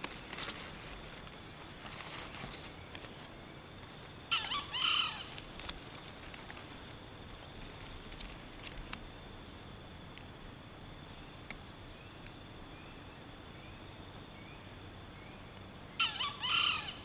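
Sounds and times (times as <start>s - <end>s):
faint crackles: 0.0s - 4.4s, 5.2s - 10.3s
high insect hum: 0.0s - 17.0s
junglefowl call: 4.3s - 5.5s, 16.0s - 17.0s.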